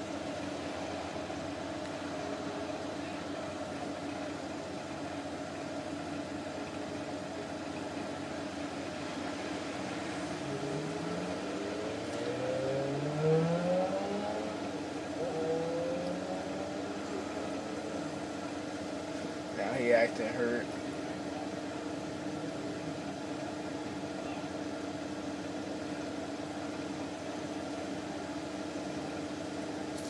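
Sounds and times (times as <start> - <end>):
car engine accelerating through gears: 8.9 - 18.4.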